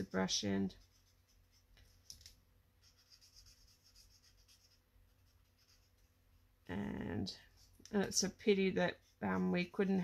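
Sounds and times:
marker scratching on paper: 0.0s - 6.1s.

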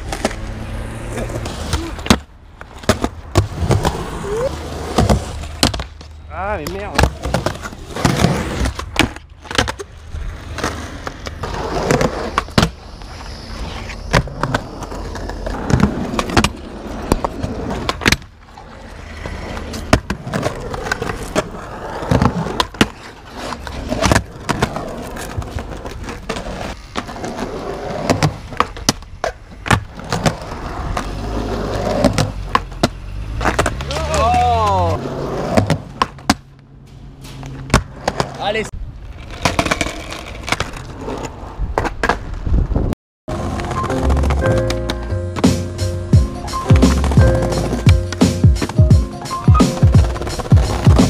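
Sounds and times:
skateboard wheels rolling on concrete: 0.0s - 51.0s
skateboard clacks and knocks: 14.1s - 34.4s.

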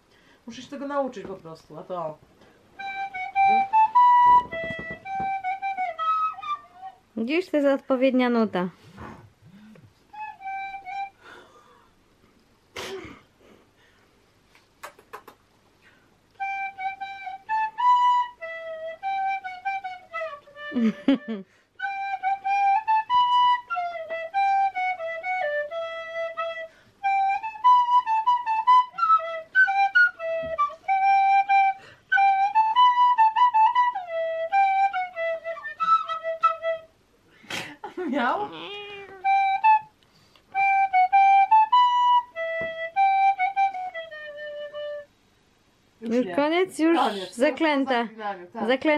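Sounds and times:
fipple flute melody: 2.7s - 7.2s, 10.0s - 11.4s, 16.3s - 37.0s, 38.5s - 45.2s.

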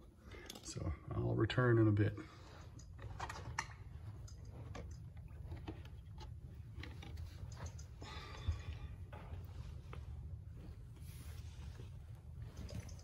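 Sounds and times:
low steady hum: 0.0s - 13.0s
faint clicks and taps: 2.4s - 10.8s.

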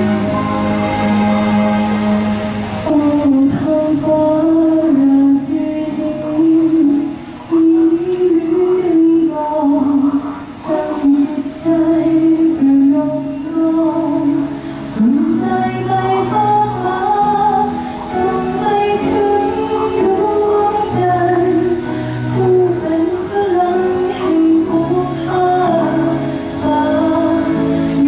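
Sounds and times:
steady bass line: 0.0s - 3.9s
woman singing: 2.8s - 28.0s.

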